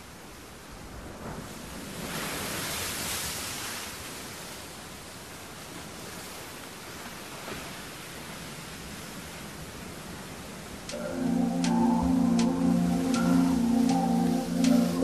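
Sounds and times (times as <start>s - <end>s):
steady rushing noise: 10.7s - 15.0s.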